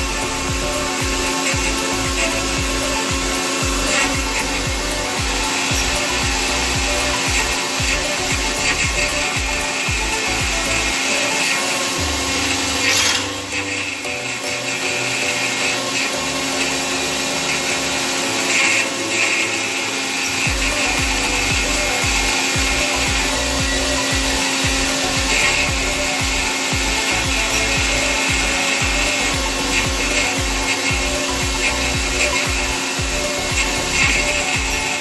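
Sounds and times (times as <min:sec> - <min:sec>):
rapid low pulsing: 0:00.0 - 0:11.4, 0:20.3 - 0:35.0
drill rig drilling rock: 0:00.0 - 0:35.0.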